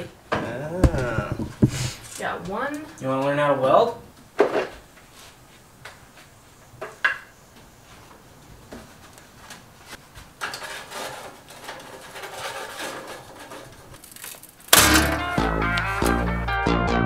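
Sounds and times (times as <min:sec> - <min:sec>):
rubbing and scraping of metal: 0:10.4 - 0:16.2.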